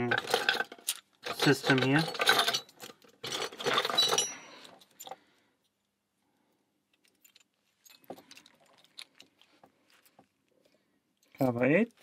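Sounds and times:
metal keys clattering and jangling: 1.3s - 5.2s, 7.0s - 9.0s.

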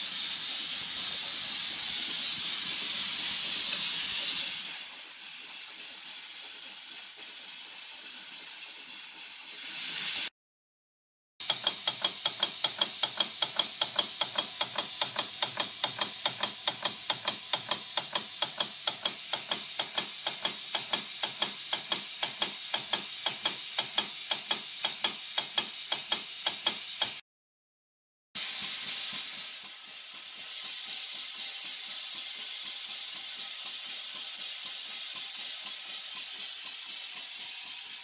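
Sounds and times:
air compressor clacking: 0.0s - 8.1s, 11.4s - 27.2s, 28.4s - 38.0s.

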